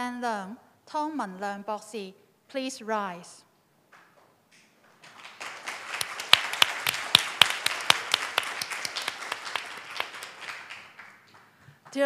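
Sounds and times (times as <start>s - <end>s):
crowd applause: 5.0s - 11.6s.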